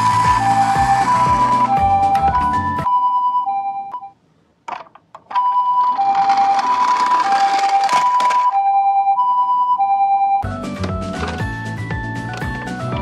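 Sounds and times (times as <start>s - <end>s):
two-tone ambulance siren: 0.0s - 3.8s, 5.4s - 10.5s.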